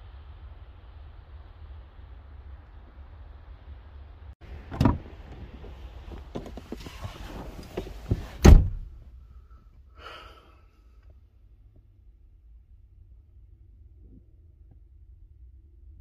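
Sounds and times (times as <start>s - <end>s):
car door slammed shut: 4.6s - 5.1s, 8.0s - 9.0s.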